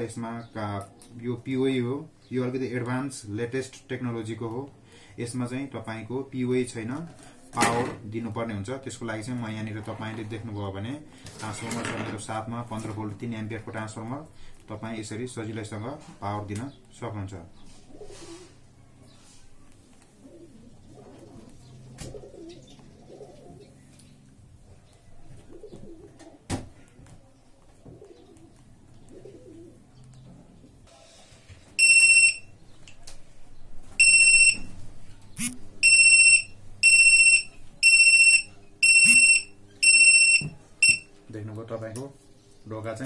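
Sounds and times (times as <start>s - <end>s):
shrill buzzer beeps: 31.8s - 32.5s, 34.0s - 34.7s, 35.4s - 41.1s.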